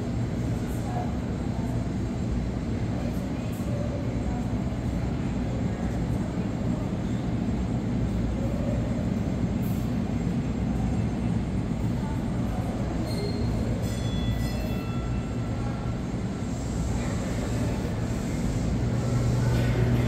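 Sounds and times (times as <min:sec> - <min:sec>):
subway train rumbling: 0:00.0 - 0:20.0
faint wheel squeal: 0:13.0 - 0:15.4.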